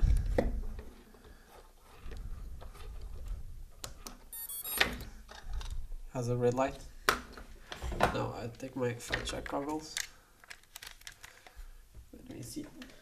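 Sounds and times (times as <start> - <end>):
high electronic chirp: 4.4 - 4.8
wires rustling: 7.5 - 13.0.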